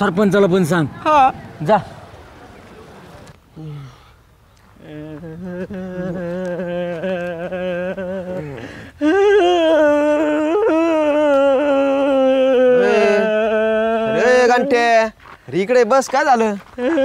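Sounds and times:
loud wailing crying: 4.9 - 14.9.

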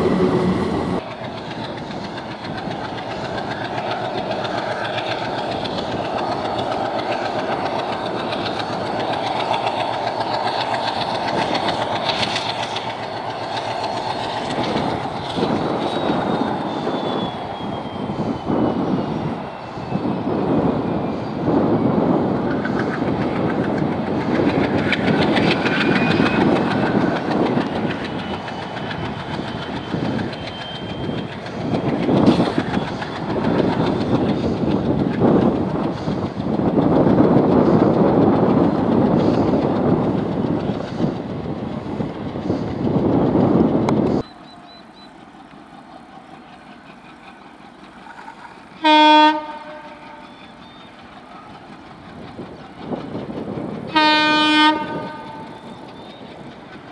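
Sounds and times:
diesel locomotive engine chugging: 0.0 - 56.9
train wheels clacking over rail joints: 0.2 - 17.8, 22.4 - 42.9
locomotive horn blast: 48.8 - 50.3, 53.9 - 55.4.

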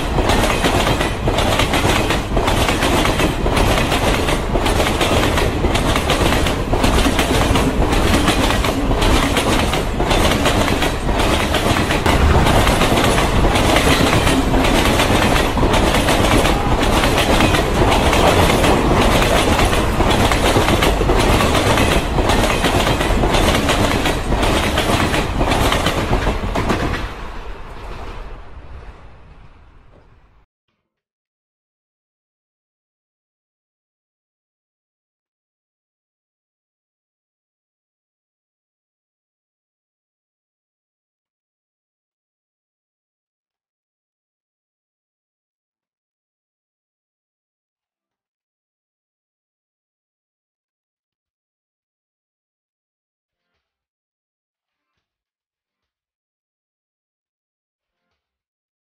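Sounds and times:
freight train wheels clattering: 0.0 - 27.2.

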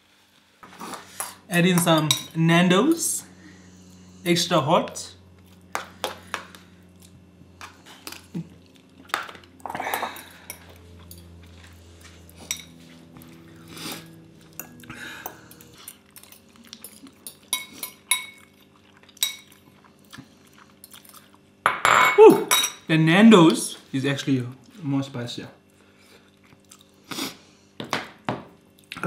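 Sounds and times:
cutlery clinking on bowls: 12.4 - 12.9, 14.5 - 19.6.

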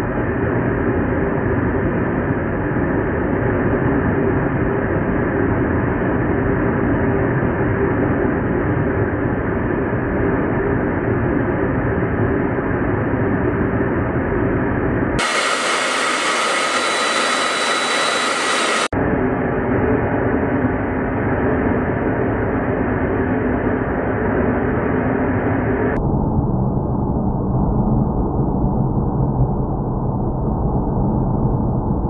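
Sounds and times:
jet aircraft in flight: 0.0 - 32.0
hissy jet whine: 15.2 - 18.9
steady high tones: 15.2 - 18.9.

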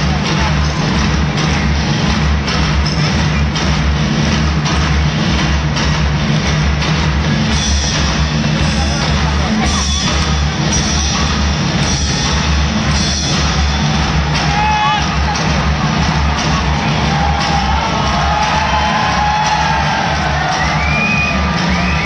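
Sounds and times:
loud music over loudspeakers: 0.0 - 22.0.

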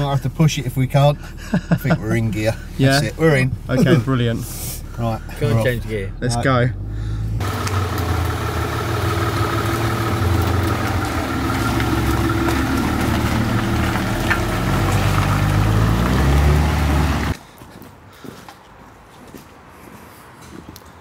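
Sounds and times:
car engine running: 0.0 - 17.4.

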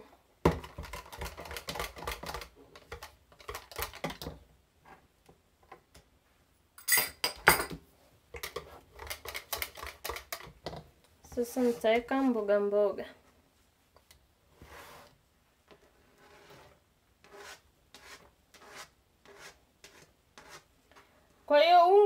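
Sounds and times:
wire whisk beating batter: 0.5 - 4.3, 8.4 - 10.6.

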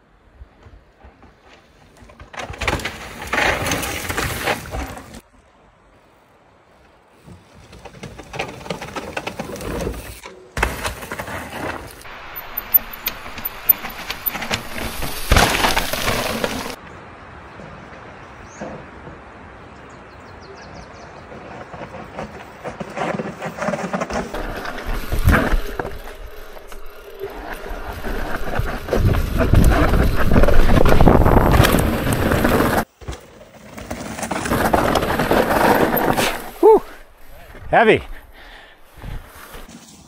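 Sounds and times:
bikes clacking and rattling: 0.6 - 5.2, 7.2 - 16.8, 21.4 - 37.6
bike tyres crunching on dirt: 1.0 - 5.3, 6.0 - 16.8, 21.3 - 40.0.

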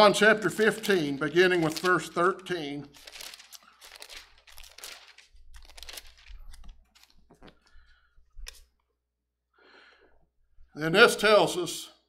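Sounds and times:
book pages rustling: 0.4 - 8.8.

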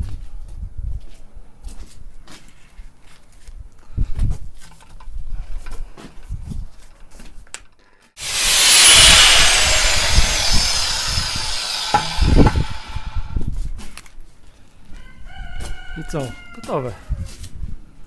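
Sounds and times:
angle grinder cutting steel: 8.2 - 13.4.

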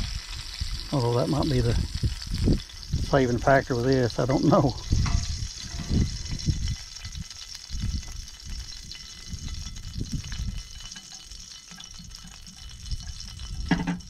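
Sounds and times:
fish frying in hot oil: 0.0 - 14.0
low dull bumps: 4.2 - 8.2.

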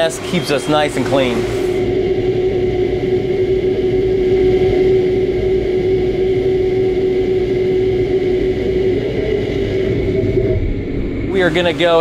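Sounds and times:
pitched machine whine: 0.0 - 12.0.

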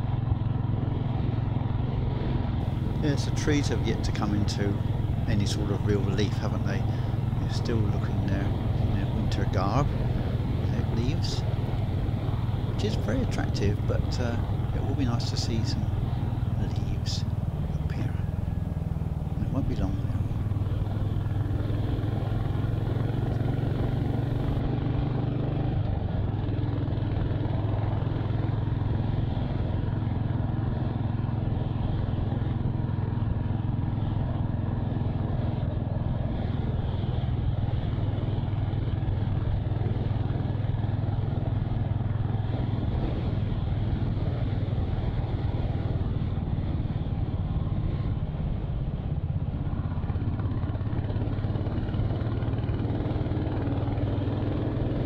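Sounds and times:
motorcycle engine: 0.0 - 55.0.

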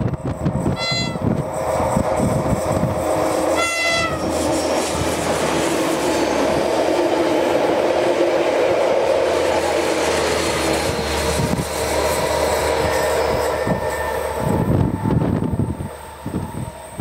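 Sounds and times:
train engines droning: 0.0 - 17.0
train wheels clattering on rails: 0.0 - 17.0
brief high tone: 0.8 - 1.3.

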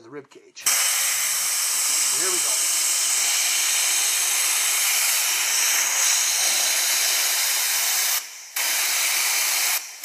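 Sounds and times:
hiss of air being blown: 0.6 - 10.0.

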